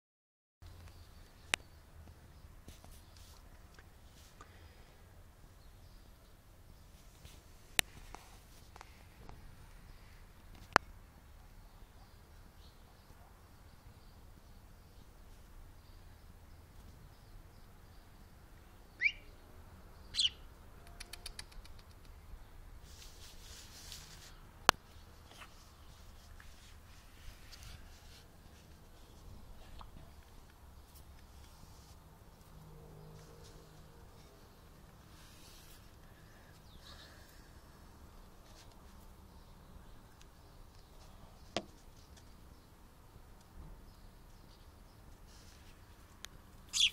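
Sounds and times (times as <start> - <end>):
bird chirping: 11.4 - 22.6, 46.6 - 46.9.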